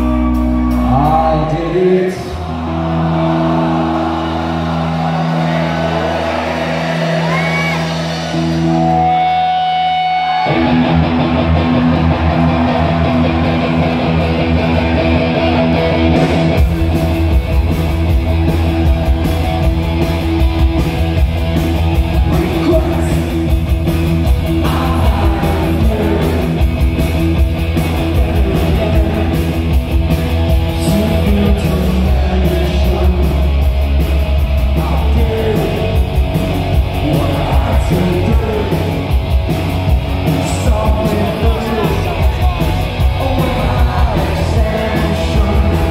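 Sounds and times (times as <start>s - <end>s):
man singing: 0.0s - 2.6s, 22.2s - 23.6s, 24.5s - 26.8s, 27.9s - 29.7s, 30.7s - 33.6s, 34.6s - 36.2s, 36.8s - 39.1s, 40.2s - 45.9s
bass guitar: 0.0s - 45.9s
drums: 0.0s - 45.9s
electric guitar: 0.0s - 45.9s.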